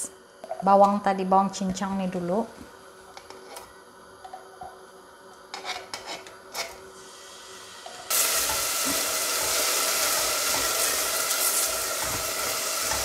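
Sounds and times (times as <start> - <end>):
utensil scraping bowl and pot: 3.2 - 3.7, 5.5 - 6.8, 7.9 - 13.0
onion sizzling in hot oil: 5.6 - 13.0.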